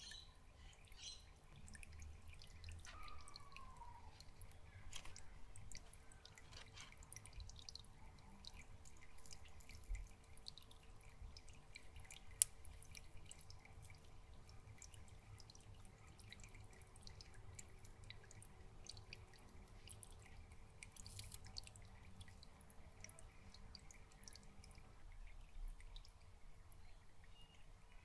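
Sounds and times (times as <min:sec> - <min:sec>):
small drip ticks: 0:00.0 - 0:28.0
water trickling over rock: 0:00.0 - 0:28.0.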